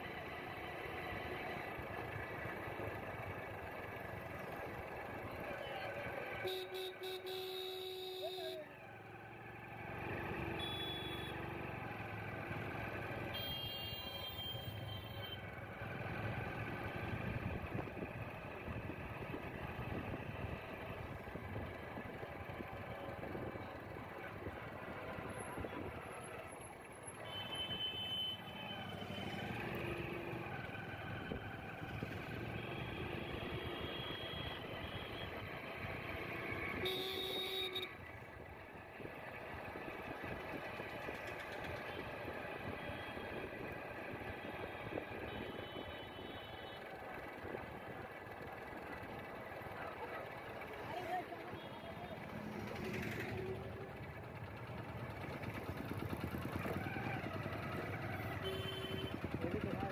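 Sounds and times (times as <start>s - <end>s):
high beeping vehicle horns: 6.4s - 8.6s, 10.5s - 11.5s, 13.4s - 15.2s, 32.5s - 35.4s, 36.7s - 38.0s, 58.3s - 59.3s
wind and road noise rumble: 15.5s - 27.2s, 28.9s - 36.9s, 37.9s - 51.6s.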